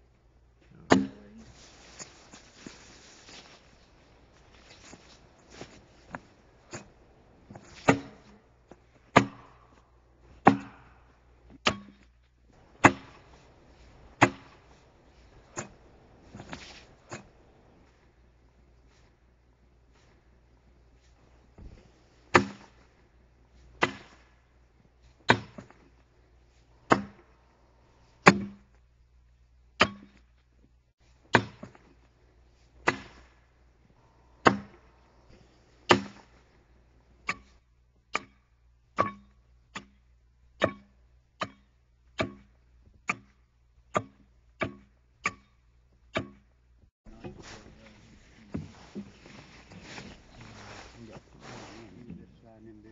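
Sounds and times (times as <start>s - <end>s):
axe chopping a log: 0.8s - 1.2s, 7.5s - 8.4s, 9.1s - 9.6s, 10.4s - 10.9s, 11.6s - 12.1s, 12.8s - 13.4s, 14.2s - 14.7s, 15.5s - 17.3s, 22.3s - 22.8s, 23.8s - 24.3s, 25.2s - 25.8s, 26.8s - 27.3s, 28.2s - 28.7s, 29.8s - 30.3s, 31.3s - 31.8s, 32.8s - 33.4s, 34.4s - 34.9s, 35.9s - 36.3s, 37.2s - 37.5s, 38.1s - 38.4s, 39.0s - 40.0s, 40.6s - 45.5s, 46.1s - 46.5s.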